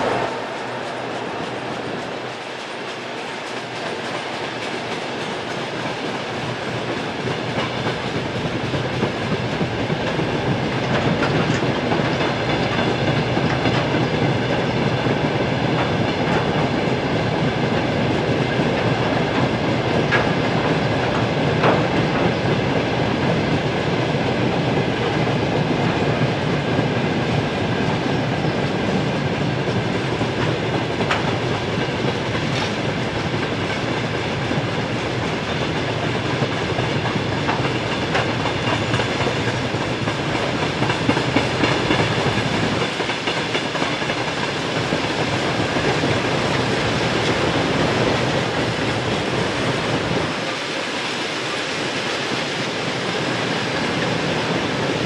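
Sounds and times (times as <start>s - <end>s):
wheels clicking on rails: 0.0s - 15.0s, 29.7s - 50.8s.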